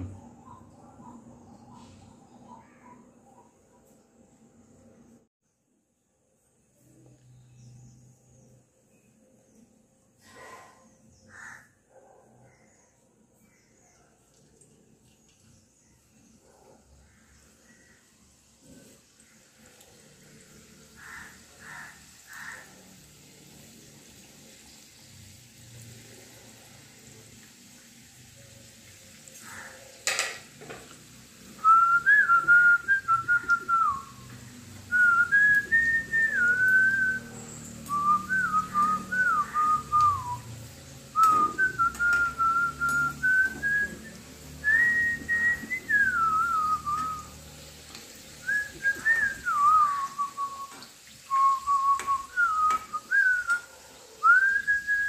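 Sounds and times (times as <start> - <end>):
food deep-frying in oil: 12.7 - 55.0
person whistling a tune: 31.6 - 34.2, 34.9 - 37.3, 37.9 - 40.5, 41.2 - 47.3, 48.4 - 53.6, 54.2 - 55.0.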